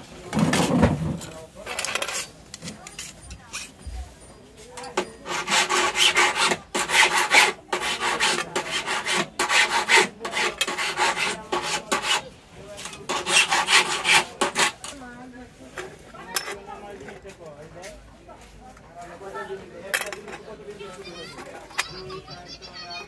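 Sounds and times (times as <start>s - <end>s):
key cutter grinding metal: 4.8s - 12.2s, 12.8s - 14.9s.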